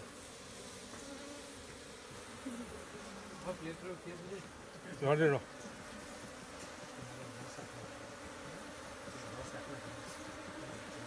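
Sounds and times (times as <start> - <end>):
bees buzzing: 0.0 - 11.0.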